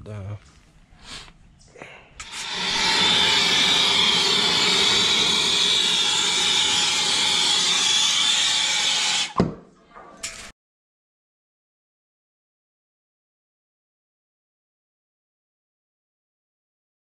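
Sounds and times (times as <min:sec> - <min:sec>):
gas torch flame hissing: 0:02.2 - 0:09.4.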